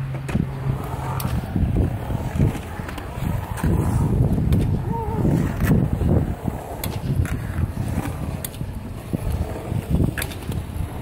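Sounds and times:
skateboard sharp clacks: 0:00.0 - 0:11.0
skateboard wheels rolling on concrete: 0:00.0 - 0:11.0.

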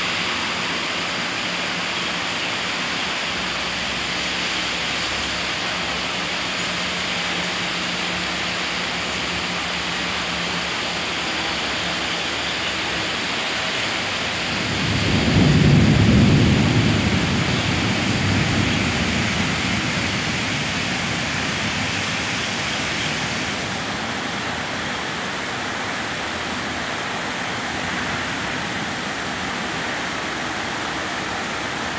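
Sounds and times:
heavy rain: 0:00.0 - 0:31.9
thunder rolling: 0:13.9 - 0:24.1.

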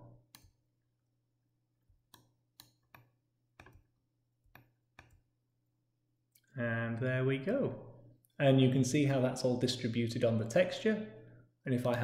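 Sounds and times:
computer mouse clicks: 0:00.2 - 0:00.6, 0:02.0 - 0:05.3.

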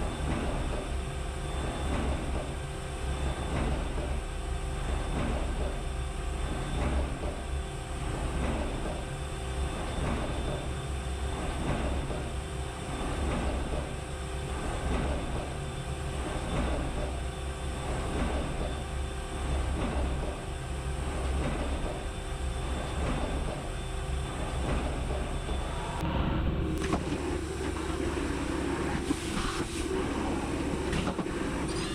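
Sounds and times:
machine hum: 0:22.1 - 0:31.9.

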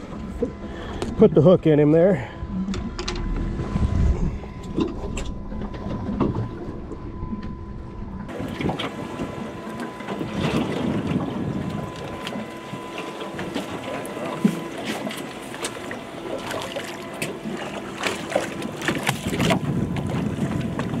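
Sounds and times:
boat engine idling: 0:00.0 - 0:21.0
wind noise on microphone: 0:02.4 - 0:09.5, 0:10.2 - 0:12.2, 0:18.8 - 0:21.0.

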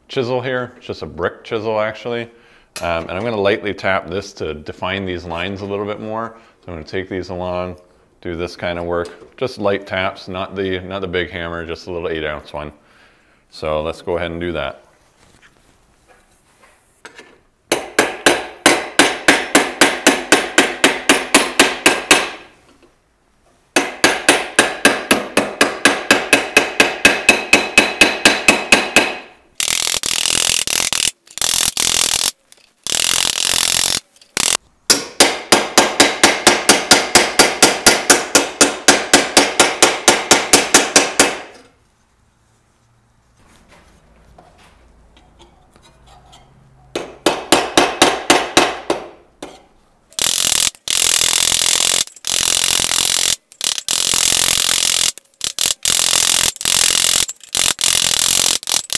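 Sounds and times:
hammer tapping sheet steel: 0:23.8 - 0:29.3.

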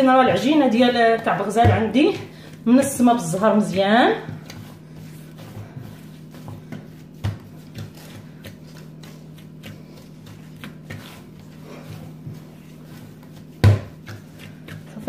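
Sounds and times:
dough thudding on worktop: 0:00.0 - 0:11.5, 0:12.2 - 0:15.0
steady low hum: 0:00.0 - 0:15.0.

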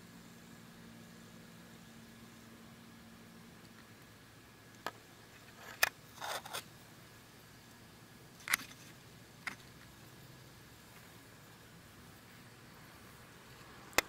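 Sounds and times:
faint steady hiss: 0:00.0 - 0:14.0
scraping rustle: 0:05.3 - 0:06.7.

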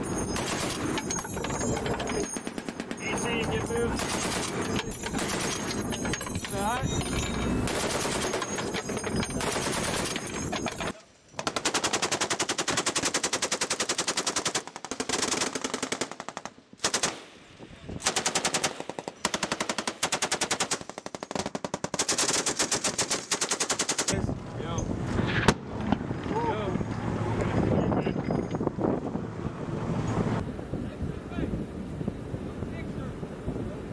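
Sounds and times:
machine gun automatic fire: 0:00.2 - 0:03.3, 0:03.9 - 0:06.3, 0:07.6 - 0:17.2, 0:18.0 - 0:24.2.

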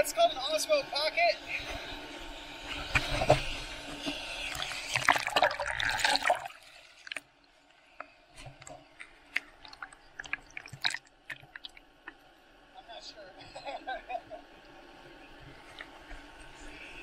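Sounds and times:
small underwater clicks: 0:07.0 - 0:12.2.

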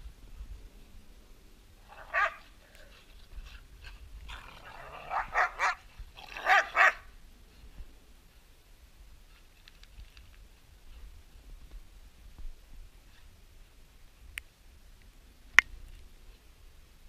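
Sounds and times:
dogs barking and yipping: 0:01.9 - 0:03.1, 0:04.3 - 0:07.1.

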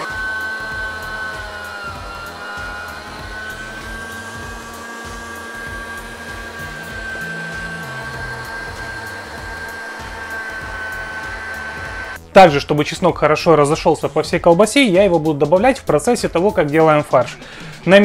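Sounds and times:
electric meat grinder whine: 0:00.0 - 0:12.2.

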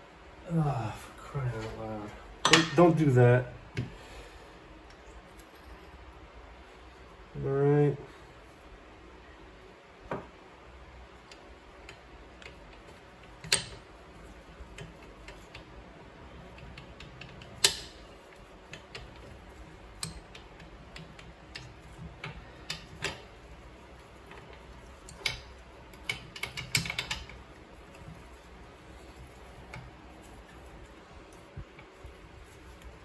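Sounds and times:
metal parts clicking and clinking: 0:24.2 - 0:32.0.

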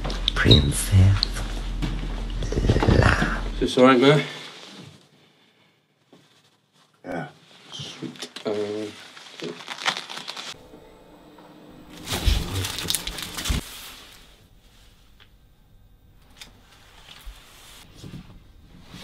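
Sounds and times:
crinkling and rustling of item: 0:06.1 - 0:10.6, 0:12.0 - 0:13.9.

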